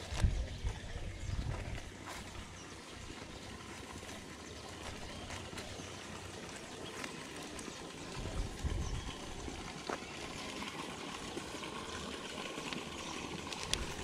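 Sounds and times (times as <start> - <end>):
light scattered ticks: 12.6 - 14.0.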